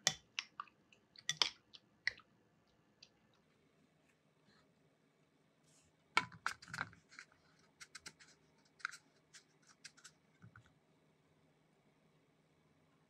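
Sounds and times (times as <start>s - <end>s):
crunchy scratches in breadcrumbs: 6.6s - 10.2s.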